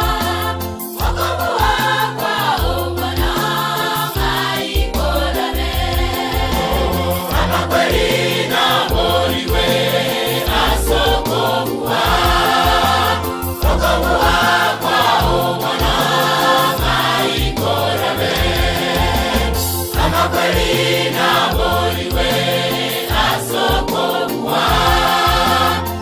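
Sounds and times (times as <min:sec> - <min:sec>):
choir singing gospel song: 0:00.0 - 0:26.0
steady beat: 0:00.0 - 0:26.0
bass line: 0:04.9 - 0:08.3, 0:12.0 - 0:16.2, 0:16.8 - 0:20.7.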